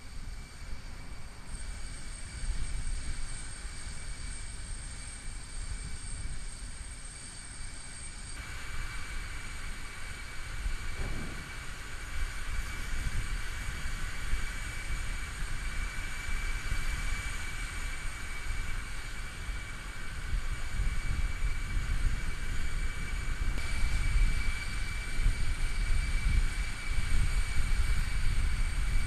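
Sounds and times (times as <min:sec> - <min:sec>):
high-pitched aircraft whine: 0:00.0 - 0:29.0
low rumble: 0:10.8 - 0:12.0.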